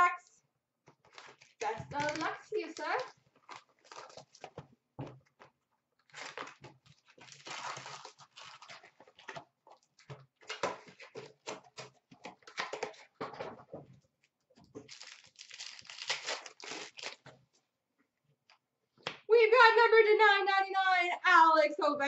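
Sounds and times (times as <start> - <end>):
packaging crinkling and tearing: 1.0 - 4.6, 6.0 - 9.5, 14.8 - 17.4.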